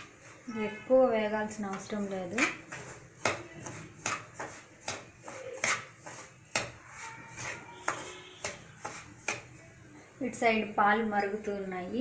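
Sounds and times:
metal spatula scraping pan: 0.0s - 9.6s.

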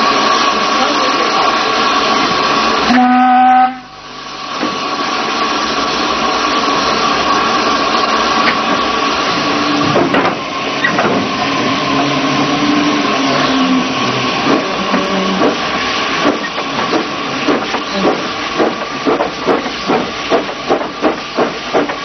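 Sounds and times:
steam hissing: 0.0s - 22.0s
steam locomotive whistle: 2.8s - 4.0s.

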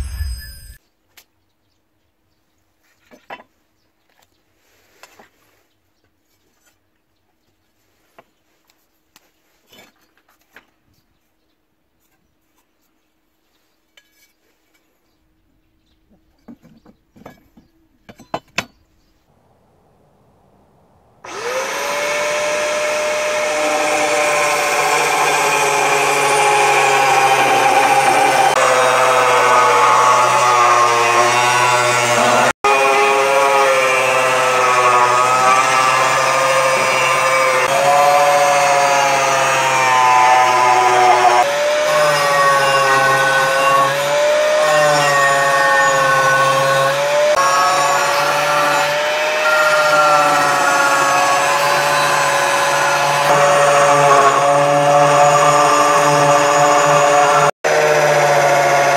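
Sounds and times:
angle grinder motor whine: 0.0s - 0.8s, 21.2s - 58.9s
grinder disc cutting steel: 21.2s - 58.9s.

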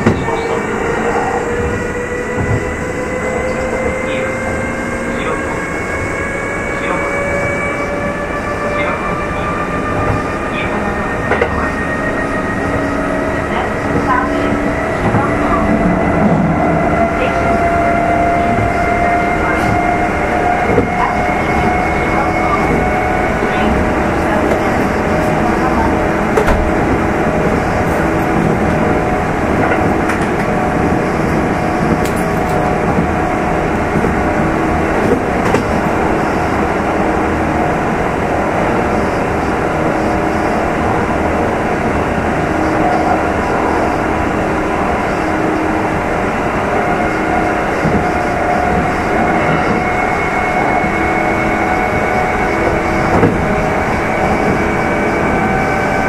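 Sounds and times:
wheels rumbling on rail: 0.0s - 56.0s.

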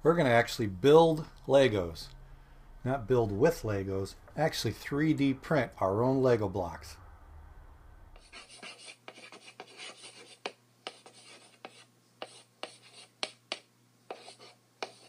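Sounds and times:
chalk scratching on blackboard: 8.2s - 15.0s
chalk tapping: 8.2s - 15.0s.

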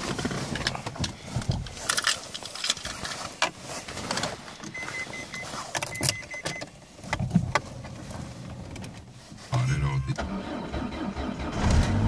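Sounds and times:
handling clicks and knocks in car: 0.0s - 9.4s.

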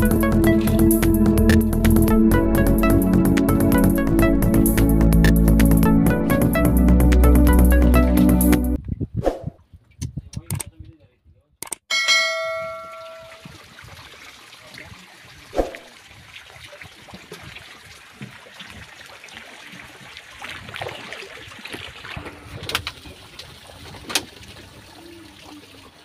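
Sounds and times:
water lapping and trickling: 12.4s - 26.0s.

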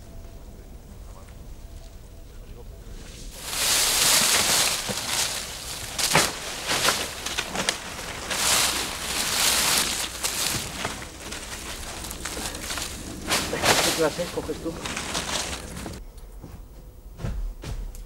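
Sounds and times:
leafy branches rustling: 2.9s - 16.0s
twigs snapping: 3.4s - 16.0s.

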